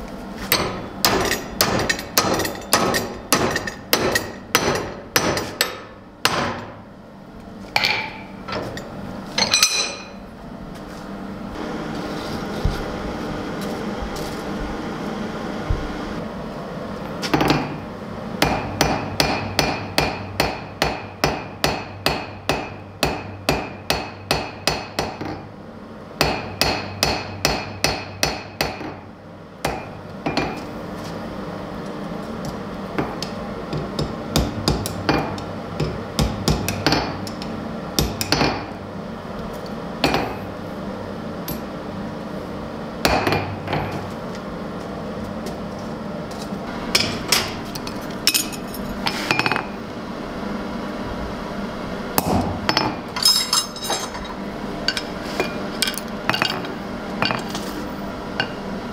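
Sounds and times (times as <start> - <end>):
steady low hum: 0.0 - 58.9
hammer striking steel on anvil: 0.5 - 6.8, 9.4 - 10.2, 18.4 - 25.5, 26.2 - 29.0, 29.6 - 30.7, 33.0 - 37.4, 38.0 - 38.7, 40.0 - 40.5, 43.0 - 44.1.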